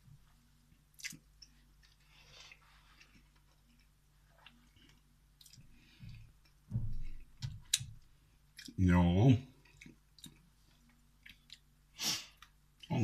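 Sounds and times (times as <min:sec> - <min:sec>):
faint chewing: 0:00.7 - 0:07.9, 0:08.5 - 0:08.8, 0:09.6 - 0:12.9
soft low thump: 0:06.0 - 0:07.7.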